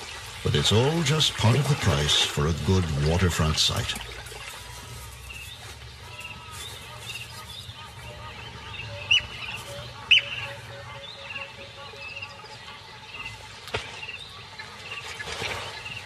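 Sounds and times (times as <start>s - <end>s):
bird high piping notes: 4.2s - 16.0s
loud sharp bird calls: 5.2s - 16.0s.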